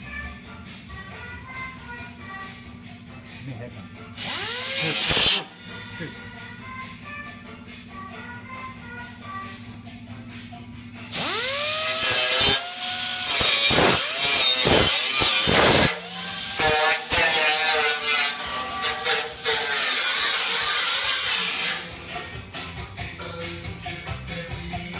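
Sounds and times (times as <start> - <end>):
high-speed power tool: 4.2 - 5.5, 11.1 - 21.9.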